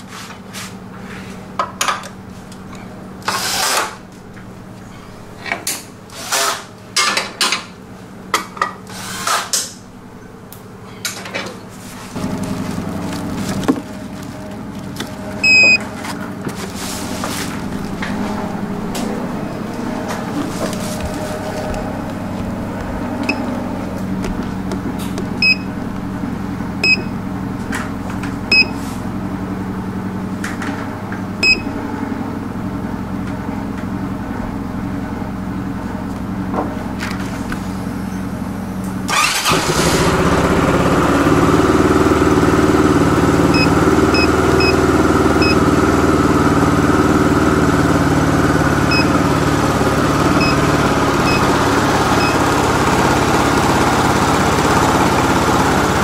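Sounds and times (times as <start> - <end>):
scooter engine running: 10.0 - 56.0
steady low hum: 11.7 - 39.1
short electronic beeps: 15.4 - 15.8, 25.4 - 25.7, 26.8 - 27.1.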